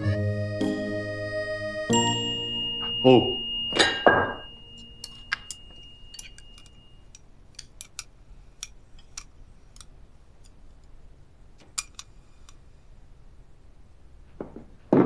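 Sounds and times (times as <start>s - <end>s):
faint high ring: 1.9s - 7.1s.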